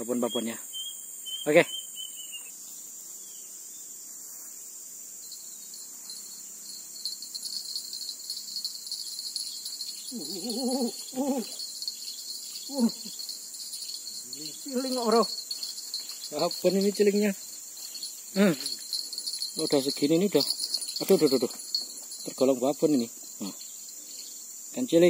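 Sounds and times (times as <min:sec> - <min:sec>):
insects chirring: 0:00.0 - 0:25.0
person's voice: 0:14.4 - 0:15.4.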